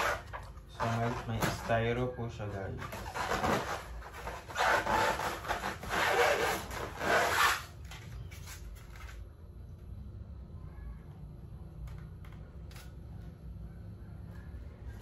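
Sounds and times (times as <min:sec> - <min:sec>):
styrofoam rubbing against box: 0:02.8 - 0:07.8.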